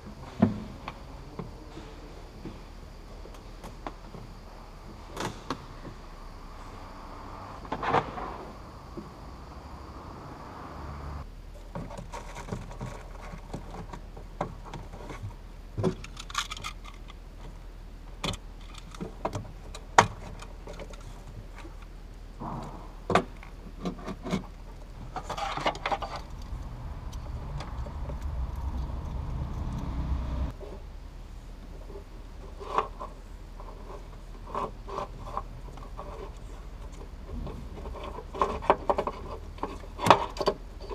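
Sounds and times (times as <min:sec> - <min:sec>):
low rumble: 0:24.8 - 0:31.4.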